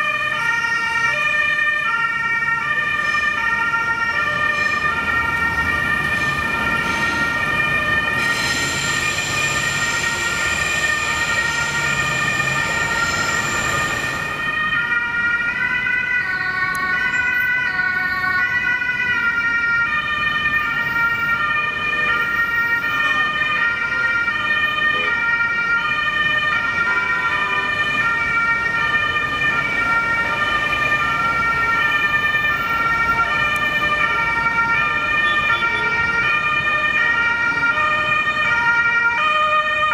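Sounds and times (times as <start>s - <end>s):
ambulance two-tone siren: 0.0s - 39.9s
vehicle passing rush: 3.5s - 16.2s, 26.1s - 39.1s.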